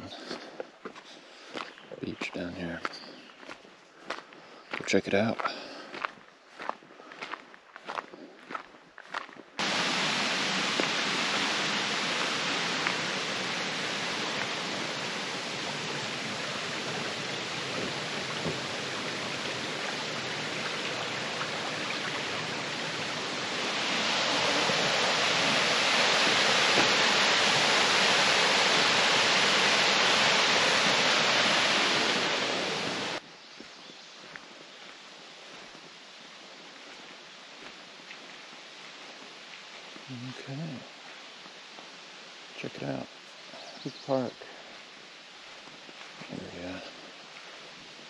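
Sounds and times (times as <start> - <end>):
rushing water: 9.6 - 33.2.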